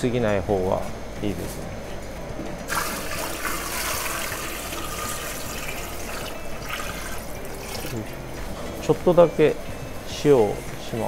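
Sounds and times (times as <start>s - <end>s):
water pouring into pot: 2.7s - 8.2s.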